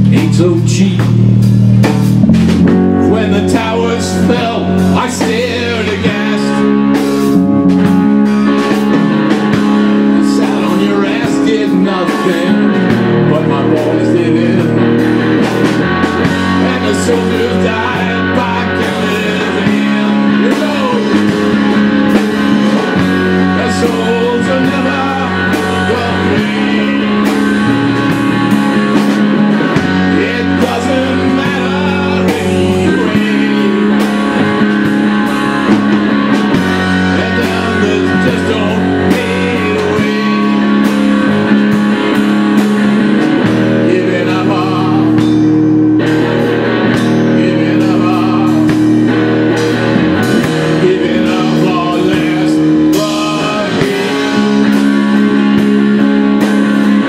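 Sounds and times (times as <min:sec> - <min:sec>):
drum kit: 0:00.0 - 0:57.0
electric guitars: 0:00.0 - 0:57.0.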